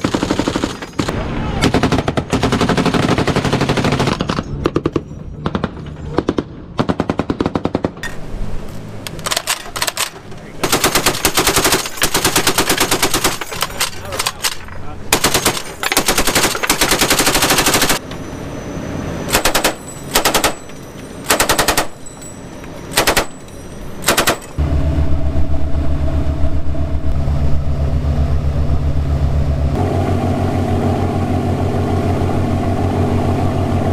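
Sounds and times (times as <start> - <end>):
machine gun firing: 0.0 - 8.0, 10.6 - 13.5, 15.1 - 18.0, 19.3 - 20.6, 21.3 - 22.0, 23.0 - 23.4, 24.0 - 24.6
boat engines droning: 8.1 - 33.9.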